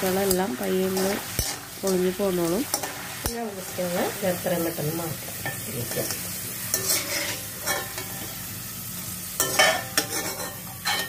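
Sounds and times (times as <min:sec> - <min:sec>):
oil sizzling in a wok: 0:00.0 - 0:11.0
spatula scraping in a wok: 0:00.0 - 0:11.0
spatula clattering against wok: 0:09.4 - 0:11.0.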